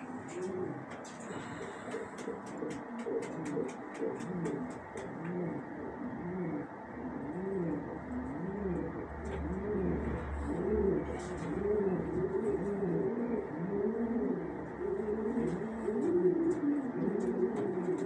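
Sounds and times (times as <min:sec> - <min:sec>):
pigeon cooing: 0:00.0 - 0:18.0.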